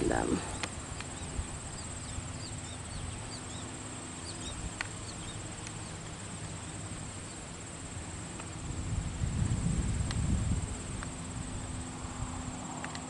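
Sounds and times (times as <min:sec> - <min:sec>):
high-pitched insect trill: 0:00.0 - 0:12.9
bird chirps: 0:00.4 - 0:07.4
faint clicks: 0:04.8 - 0:05.0, 0:12.8 - 0:13.0.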